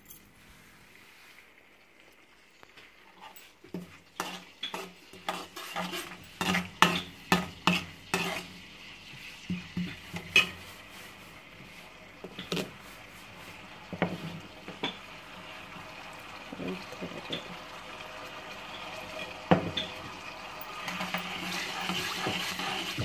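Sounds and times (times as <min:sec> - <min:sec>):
seeds sizzling in hot oil: 0:00.8 - 0:23.0
metal spoon scraping in a pan: 0:03.1 - 0:08.6, 0:09.2 - 0:11.4, 0:20.6 - 0:23.0.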